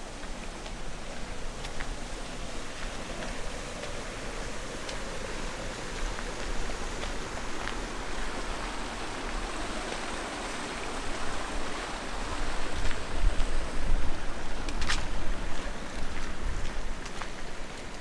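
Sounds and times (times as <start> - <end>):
outdoor background noise: 0.0 - 18.0
wind buffeting microphone: 11.1 - 17.6.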